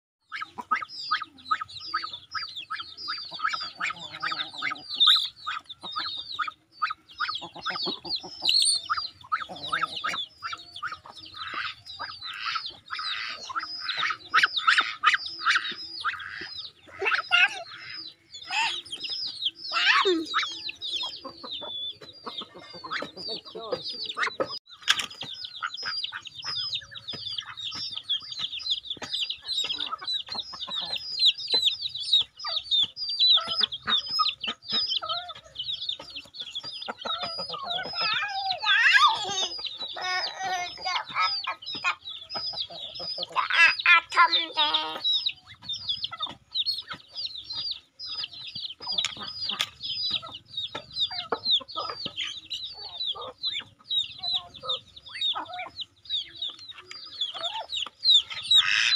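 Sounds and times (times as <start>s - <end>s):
adult fowl calling: 0.3s - 18.8s
chicks peeping: 0.3s - 58.9s.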